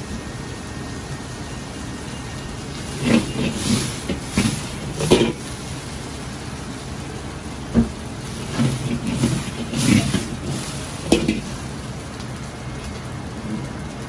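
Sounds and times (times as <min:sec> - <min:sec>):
gas burner roaring: 0:00.0 - 0:14.0
noodles sizzling in oil: 0:00.0 - 0:14.0
wok knocking and scraping: 0:02.7 - 0:05.9, 0:07.7 - 0:11.9.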